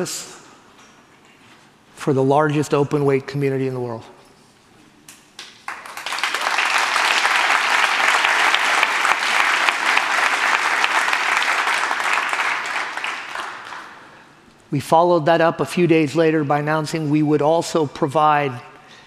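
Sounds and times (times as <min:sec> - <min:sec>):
audience applauding: 0:05.5 - 0:14.1.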